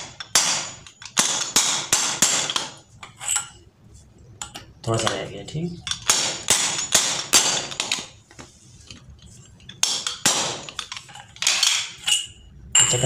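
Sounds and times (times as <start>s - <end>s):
sharp metallic knocks: 0.0s - 2.8s, 5.9s - 8.1s, 9.8s - 13.0s.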